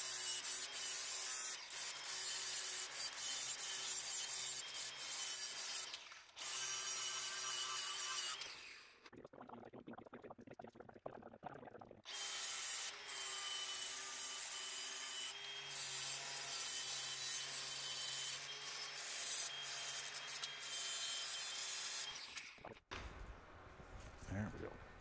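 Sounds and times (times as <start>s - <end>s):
angle grinder grinding steel: 12.1s - 22.4s.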